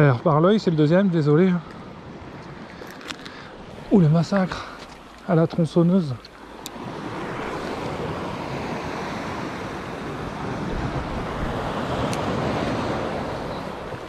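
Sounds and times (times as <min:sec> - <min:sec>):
sea washing against rocks: 0:02.7 - 0:14.0
wind buffeting microphone: 0:06.6 - 0:14.0.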